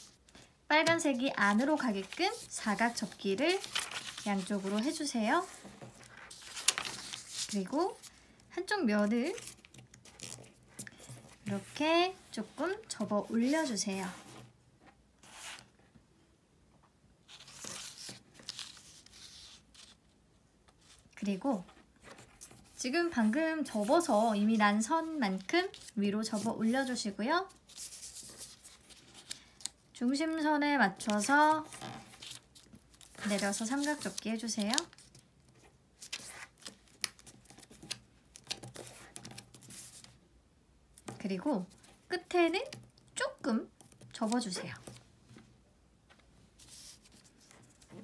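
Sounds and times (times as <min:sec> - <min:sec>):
paper rustling and crinkling: 0:00.0 - 0:08.2, 0:17.3 - 0:20.0, 0:25.1 - 0:29.8, 0:31.0 - 0:40.2, 0:46.1 - 0:48.0.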